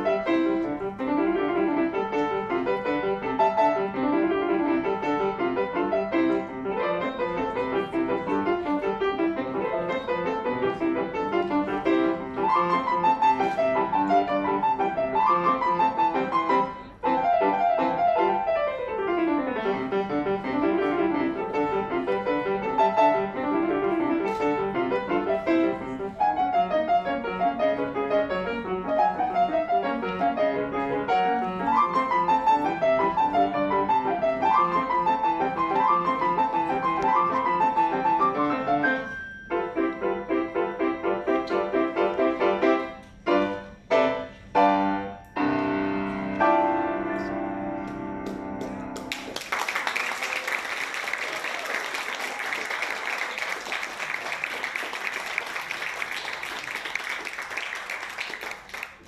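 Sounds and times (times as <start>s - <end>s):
grand piano playing: 0.0s - 49.3s
audience applause: 49.0s - 59.0s.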